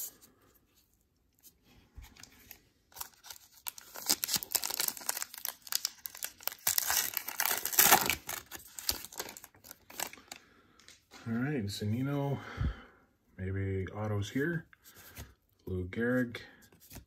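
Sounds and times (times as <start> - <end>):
foil wrapper tearing and crinkling: 2.4 - 10.4.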